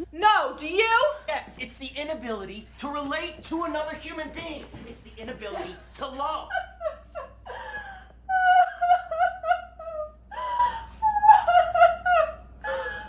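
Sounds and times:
woman laughing: 0:05.5 - 0:13.0.

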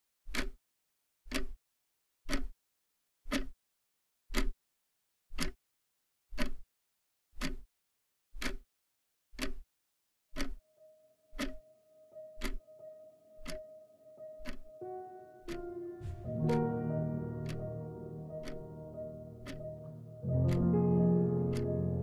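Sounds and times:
wall clock ticking: 0:00.3 - 0:00.6, 0:01.3 - 0:01.6, 0:02.3 - 0:02.6, 0:03.3 - 0:03.6, 0:04.3 - 0:04.6, 0:05.3 - 0:05.6, 0:06.3 - 0:06.6, 0:07.4 - 0:07.7, 0:08.4 - 0:08.7, 0:09.4 - 0:09.6, 0:10.3 - 0:22.0.

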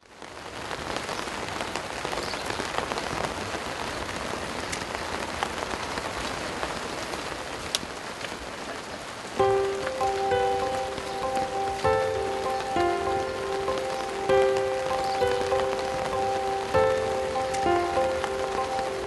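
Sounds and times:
rain on plastic sheeting: 0:00.0 - 0:19.0.

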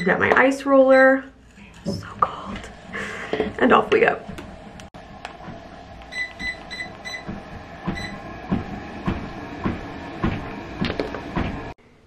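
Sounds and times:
treadmill running: 0:03.3 - 0:11.8
footsteps thudding on treadmill belt: 0:05.4 - 0:11.8.

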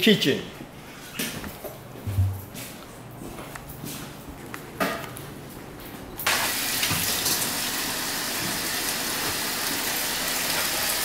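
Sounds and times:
tap water running into a pot: 0:06.2 - 0:11.0.

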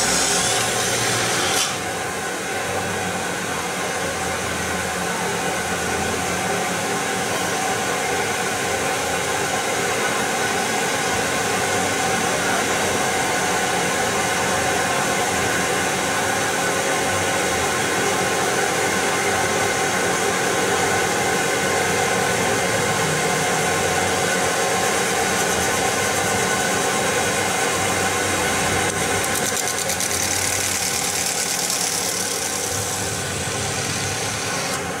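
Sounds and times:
metal spinning machine hum: 0:07.1 - 0:35.0.

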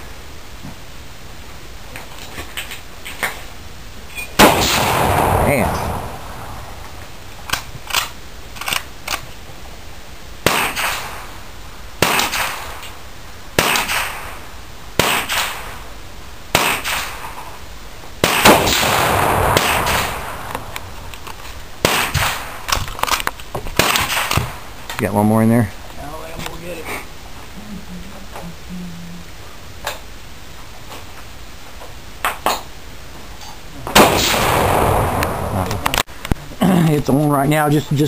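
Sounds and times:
rifle shots with echo: 0:04.4 - 0:08.7, 0:10.4 - 0:11.3, 0:12.0 - 0:12.8, 0:13.6 - 0:14.4, 0:15.0 - 0:15.8, 0:16.5 - 0:17.2, 0:18.2 - 0:20.9, 0:21.8 - 0:22.7, 0:23.8 - 0:24.6, 0:33.9 - 0:35.9.

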